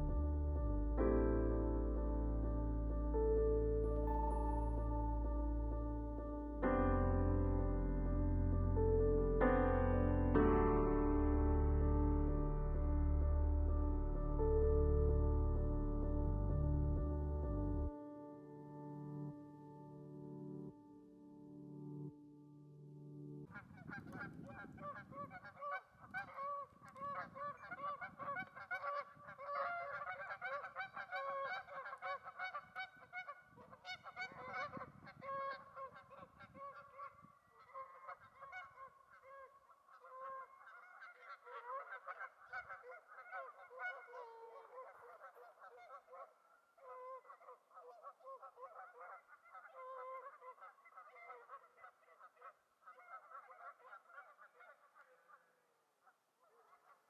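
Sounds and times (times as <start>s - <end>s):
geese honking: 23.5s - 55.4s.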